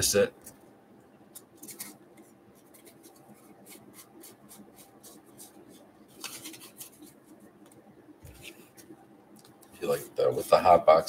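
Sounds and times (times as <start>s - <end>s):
cards sliding against each other: 1.4s - 2.0s, 2.7s - 7.2s
cards flicking and rustling: 1.4s - 8.9s.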